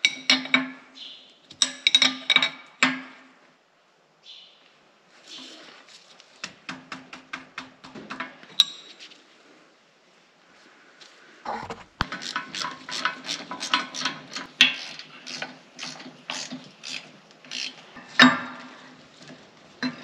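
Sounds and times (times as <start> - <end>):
hand ratchet clicking: 12.0 - 18.2.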